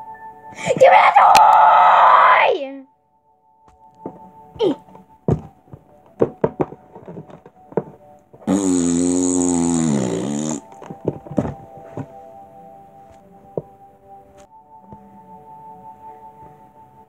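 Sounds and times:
faint music: 0.0s - 17.0s
plush toys knocking on floor: 5.3s - 8.5s, 10.8s - 12.1s.

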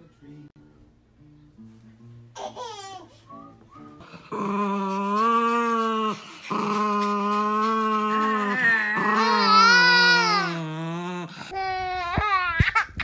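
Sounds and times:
dog howling: 4.3s - 11.3s.

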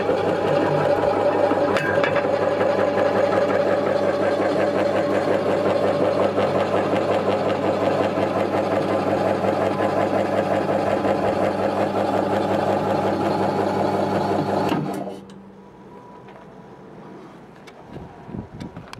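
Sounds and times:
vegetable slicer motor humming: 0.0s - 15.1s.

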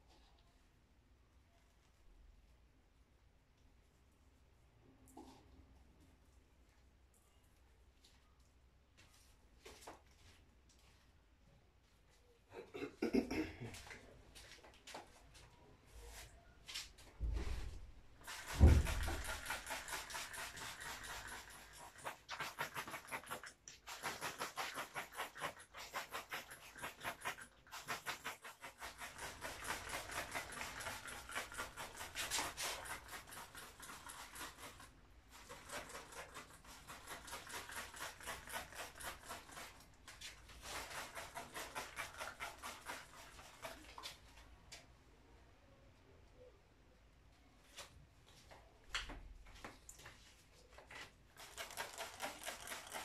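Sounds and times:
rhythmic rubbing on a painting: 18.2s - 44.2s, 51.4s - 53.0s.

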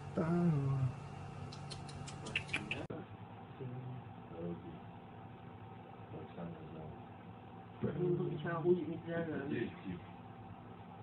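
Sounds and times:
faint clicks: 1.5s - 2.7s.

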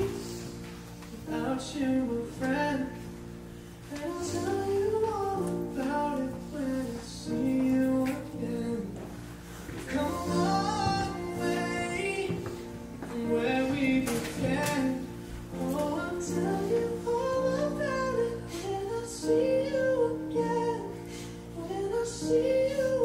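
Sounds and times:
guitar: 0.0s - 23.0s
woman singing: 3.9s - 9.0s, 9.9s - 23.0s.

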